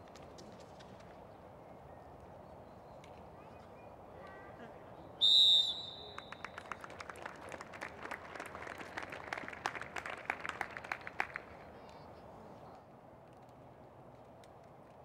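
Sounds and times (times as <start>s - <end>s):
referee's whistle blast: 5.2s - 6.4s.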